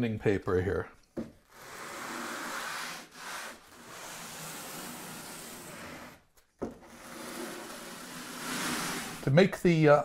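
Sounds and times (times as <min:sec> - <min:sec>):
sanding block rasping on cork: 0:01.6 - 0:06.2, 0:07.0 - 0:09.3.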